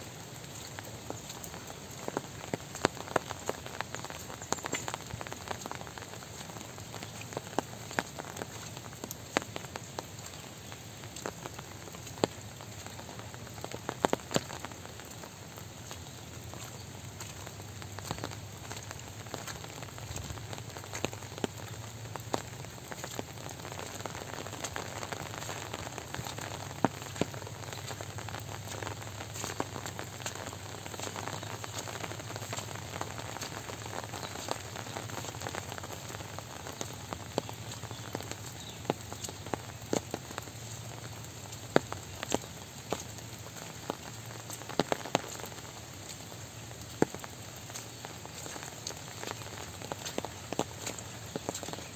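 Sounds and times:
steady soft rain: 0.0 - 51.9.

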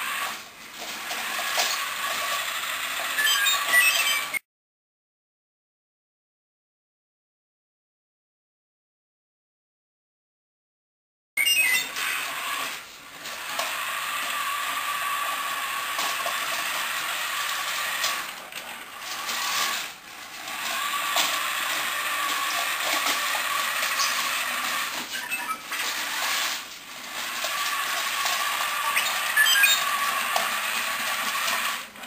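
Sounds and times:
toy robot motors whirring: 0.0 - 4.4, 11.4 - 32.0.

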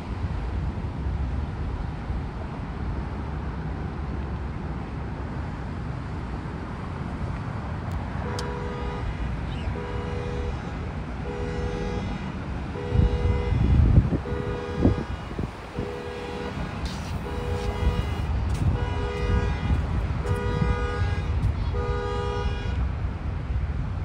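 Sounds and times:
car horn tooting: 8.2 - 22.8
wind buffeting microphone: 12.6 - 24.0.

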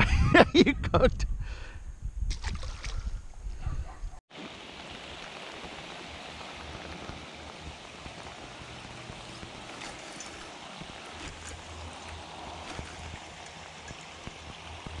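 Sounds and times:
rain falling on water: 4.3 - 15.0.

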